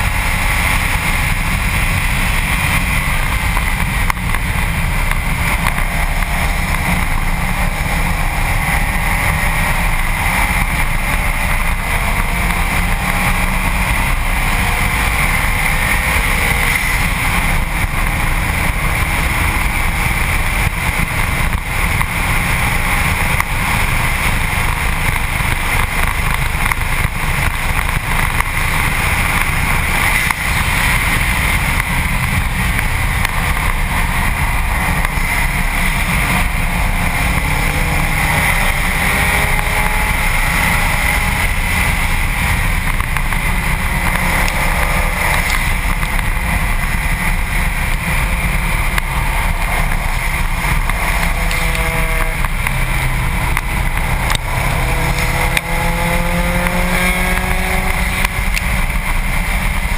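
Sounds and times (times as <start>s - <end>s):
faint car engine: 0.0s - 59.9s
wind rush on microphone: 0.0s - 59.9s.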